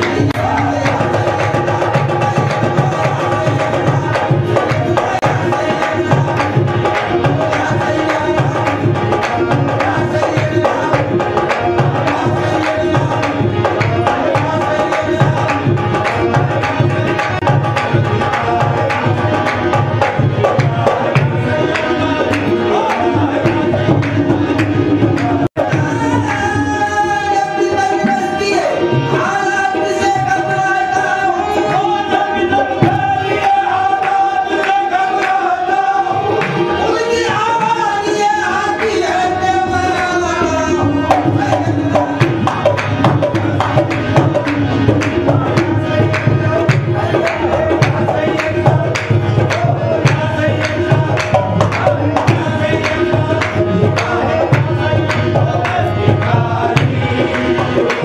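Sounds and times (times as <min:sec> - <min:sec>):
harmoniums playing melody: 0:00.0 - 0:58.0
hand-clapping: 0:33.4 - 0:36.6, 0:42.0 - 0:56.3
hand drum beat: 0:40.7 - 0:58.0.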